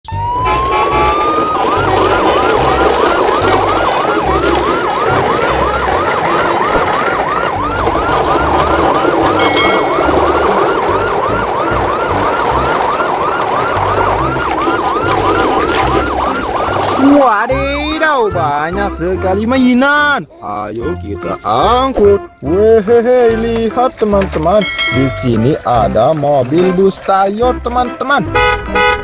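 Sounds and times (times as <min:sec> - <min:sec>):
electronic siren yelping: 0:00.0 - 0:18.3.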